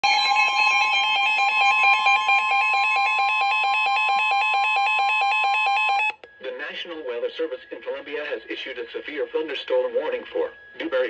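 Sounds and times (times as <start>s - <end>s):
steady high tone: 0.0s - 8.0s.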